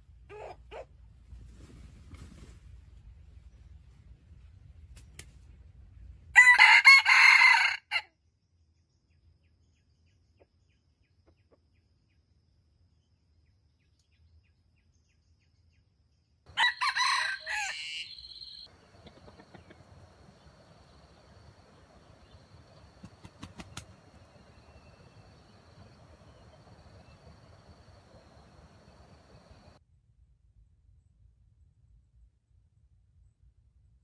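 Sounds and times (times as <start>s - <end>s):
rooster crowing: 6.4s - 8.0s, 16.5s - 29.8s.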